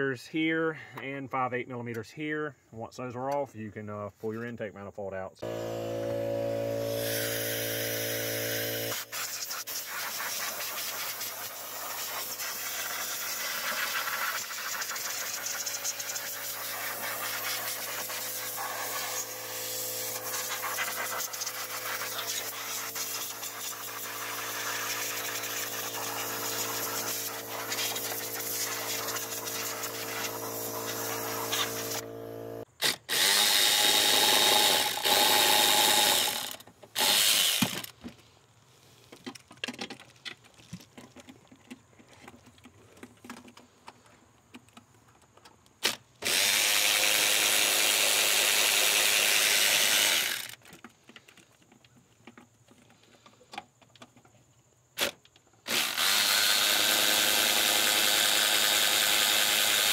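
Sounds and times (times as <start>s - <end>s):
machine motor humming: 5.4s - 9.0s, 19.1s - 32.6s.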